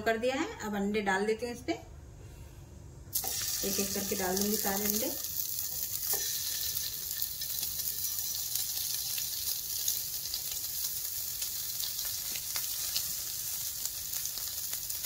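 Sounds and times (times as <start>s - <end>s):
hot oil sizzling: 3.1s - 15.0s.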